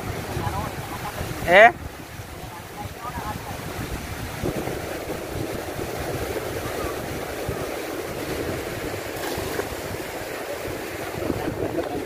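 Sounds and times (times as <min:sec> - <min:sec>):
water rushing through sluice gate: 0:00.0 - 0:12.0
wind buffeting microphone: 0:00.0 - 0:12.0.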